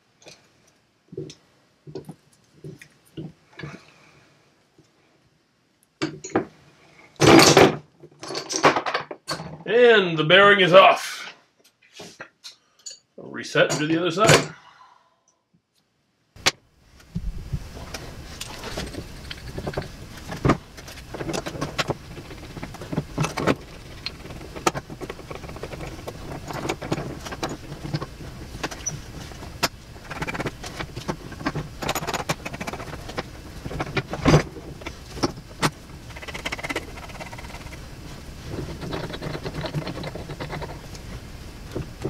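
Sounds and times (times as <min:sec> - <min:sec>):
steady low hum: 0:16.4 - 0:42.0.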